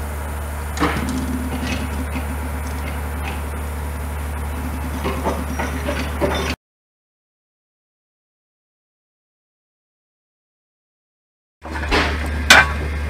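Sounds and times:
brief low hum: 0.0s - 6.6s
steam locomotive rumbling: 0.0s - 6.6s.

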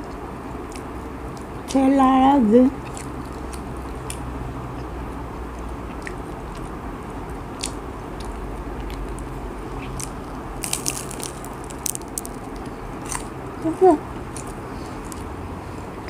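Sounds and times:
steady low hum: 0.0s - 16.0s
spring roll wrapper crunching: 8.9s - 13.3s.

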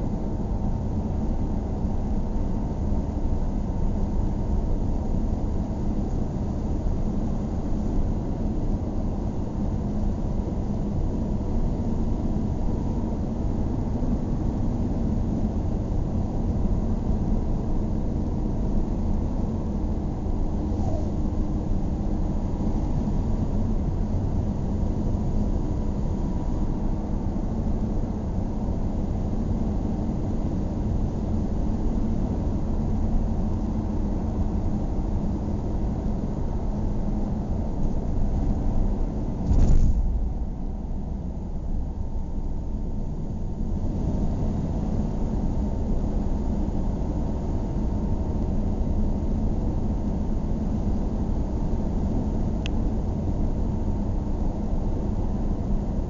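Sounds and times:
car engine and tyre rumble: 0.4s - 56.0s
brief thump: 39.4s - 40.4s.

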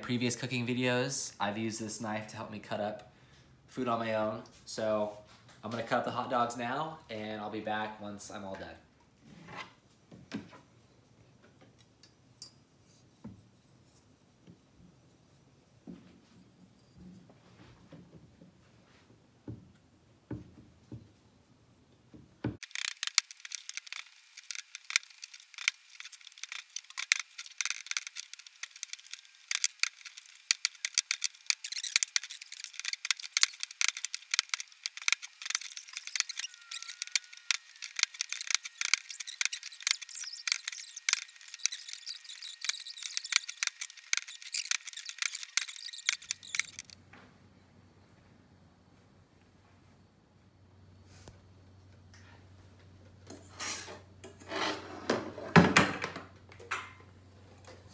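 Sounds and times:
rapid high-pitched clicks: 22.6s - 47.0s.

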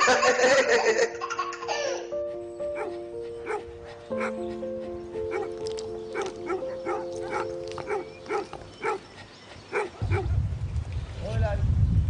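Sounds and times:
dog barking: 2.7s - 4.5s, 5.2s - 9.1s, 9.7s - 10.3s.

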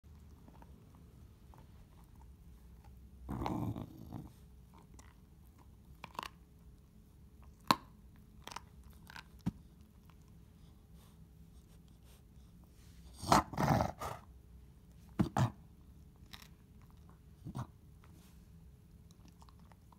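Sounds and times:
dog gnawing on a chew: 0.1s - 6.7s, 7.4s - 10.4s, 16.2s - 17.7s, 18.9s - 19.9s
dog growling: 3.2s - 4.4s, 13.1s - 14.3s.

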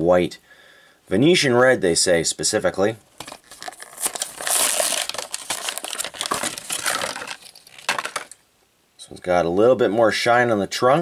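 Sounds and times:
plastic packaging crinkling and tearing: 3.2s - 8.4s.

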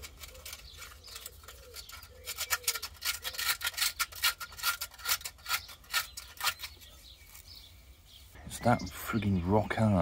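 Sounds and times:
sandpaper scratching on metal: 0.0s - 7.4s.

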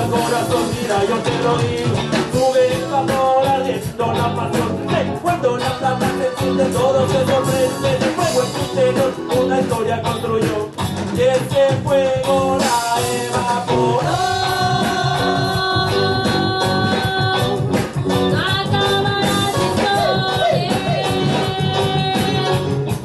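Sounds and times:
live reggae band playing: 0.0s - 23.0s
woman singing: 12.6s - 22.8s.

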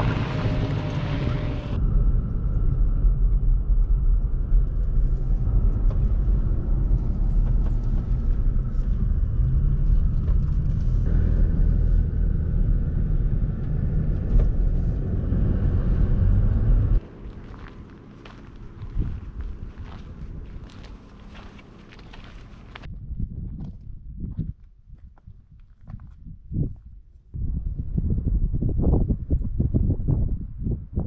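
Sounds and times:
pickup truck engine rumble: 0.0s - 22.9s
road noise: 0.0s - 22.9s.

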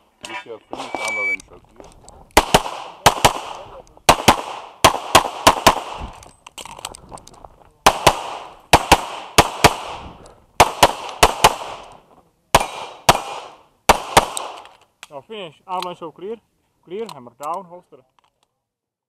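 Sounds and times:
pistol shots with echo: 2.4s - 6.2s, 7.8s - 11.9s, 12.5s - 14.6s.

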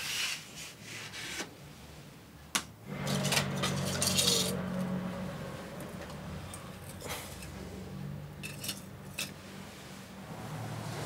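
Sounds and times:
metal tongs clinking on charcoal: 3.1s - 4.6s, 8.4s - 9.4s.

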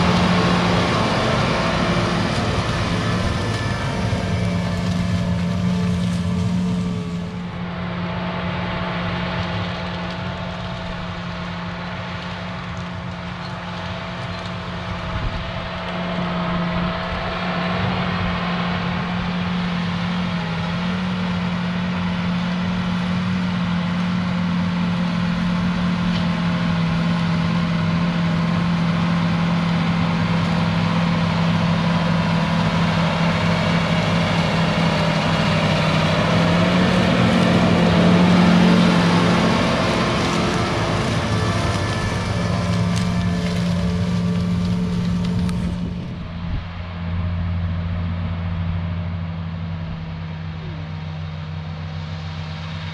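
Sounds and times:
tractor diesel engine running: 0.0s - 52.9s.

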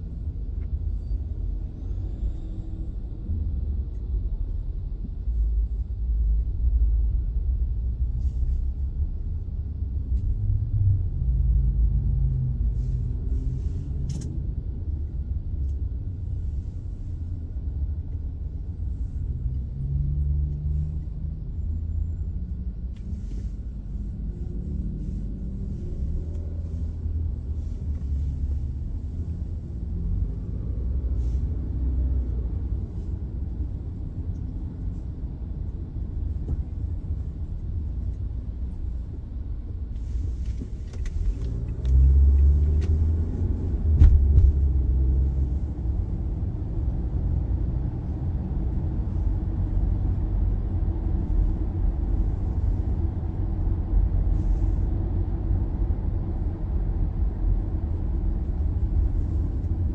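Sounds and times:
car engine rumble: 0.0s - 59.9s
road noise: 0.0s - 59.9s.

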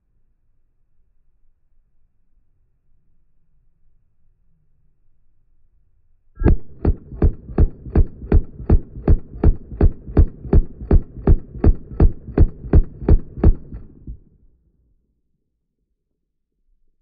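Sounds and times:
rifle firing full-auto burst: 6.4s - 14.2s.

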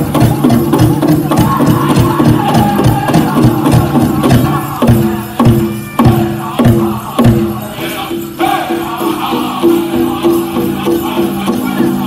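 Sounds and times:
big drum beating: 0.0s - 7.7s
jingling bells: 0.0s - 12.0s
singers' voices: 0.0s - 12.0s.

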